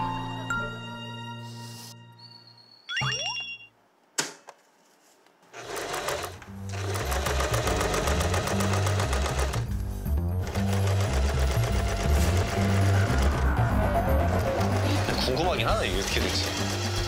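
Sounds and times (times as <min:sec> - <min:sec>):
sewing machine stitching: 0:05.5 - 0:09.7, 0:10.4 - 0:13.4, 0:14.2 - 0:17.0.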